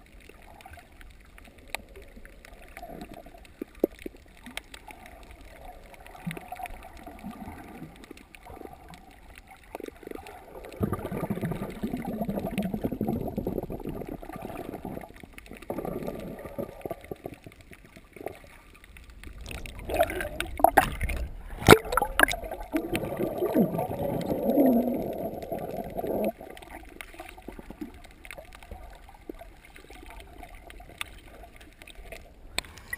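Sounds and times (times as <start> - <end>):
muffled underwater swishing: 10.2 - 28.0.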